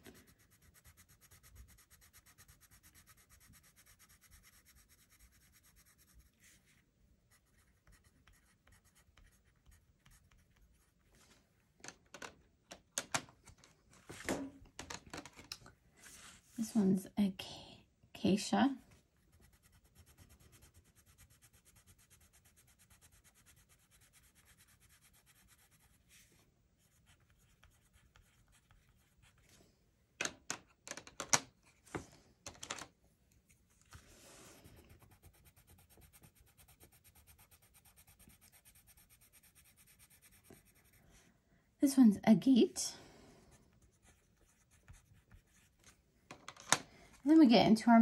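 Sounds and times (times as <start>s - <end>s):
pencil scratching on paper: 0.0s - 11.0s, 19.3s - 29.6s, 34.3s - 41.3s, 43.5s - 46.0s.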